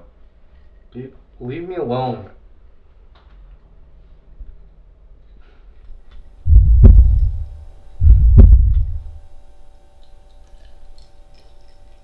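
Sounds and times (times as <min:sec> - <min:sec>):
deep heartbeat thumps: 0:06.5 - 0:09.3.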